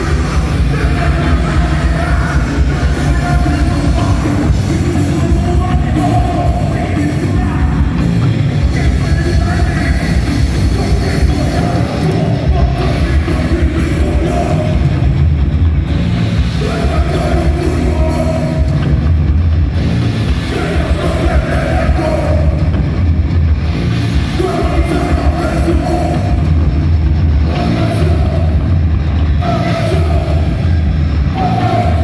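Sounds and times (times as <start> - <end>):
person singing: 0.0 - 15.1, 16.6 - 18.8, 20.4 - 22.7, 29.3 - 32.0
rock band playing: 0.0 - 32.0.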